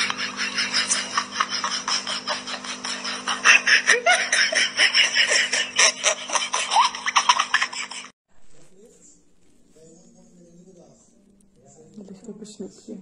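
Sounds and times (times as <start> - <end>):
person laughing: 0.0 - 8.1
steady low hum: 8.3 - 13.0.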